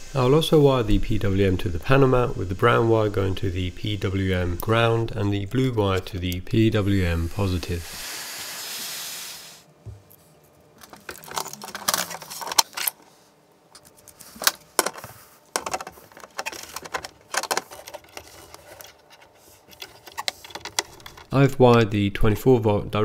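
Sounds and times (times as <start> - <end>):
heat gun blowing: 7.3 - 9.7.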